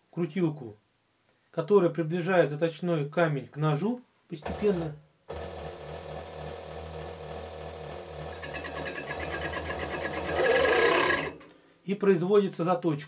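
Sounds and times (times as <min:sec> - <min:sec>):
skiving machine motor hum: 0:04.5 - 0:11.4.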